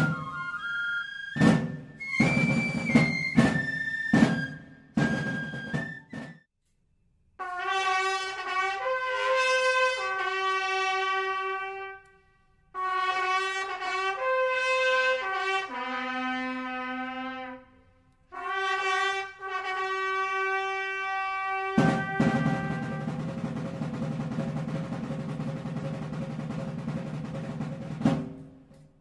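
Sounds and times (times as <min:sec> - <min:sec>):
trumpet fanfare: 0:07.4 - 0:12.1, 0:12.7 - 0:17.7, 0:18.3 - 0:23.6.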